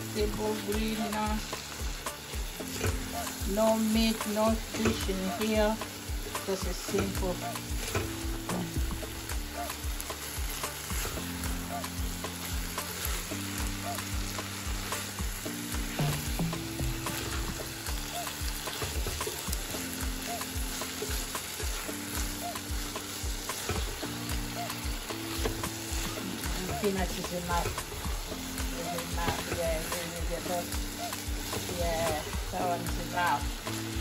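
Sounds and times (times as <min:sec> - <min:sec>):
greens sizzling in a pot: 0:00.0 - 0:34.0
afrobeat music with bass: 0:04.5 - 0:29.9.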